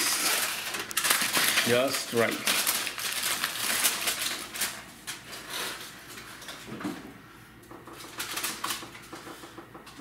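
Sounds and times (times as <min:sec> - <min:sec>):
aluminium foil rustling: 0:00.0 - 0:06.7, 0:08.0 - 0:09.0.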